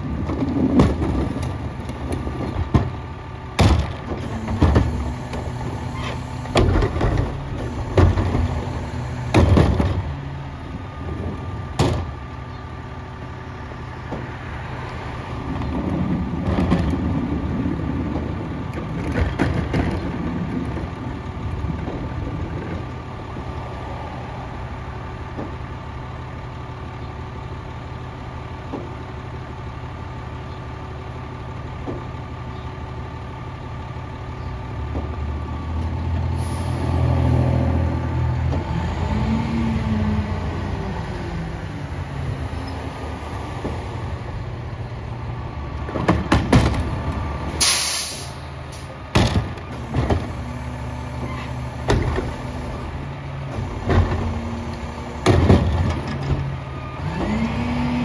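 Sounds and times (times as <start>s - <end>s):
diesel engine idling and revving: 0.0s - 58.0s
hydraulic whine: 3.7s - 12.1s, 47.5s - 58.0s
air hiss: 47.6s - 48.4s.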